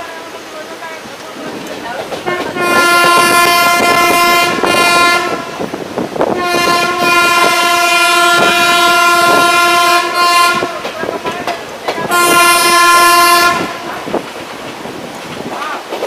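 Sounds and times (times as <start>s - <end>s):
train wheels clattering over rails: 0.0s - 16.0s
train horn blasts: 2.2s - 14.1s.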